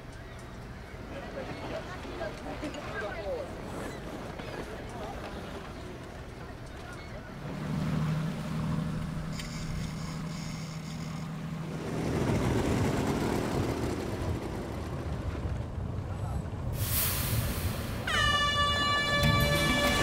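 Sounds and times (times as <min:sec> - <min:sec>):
boat engine humming: 0:00.0 - 0:14.9, 0:17.9 - 0:20.0
rushing wind: 0:08.5 - 0:20.0
sharp hiss: 0:16.8 - 0:18.0.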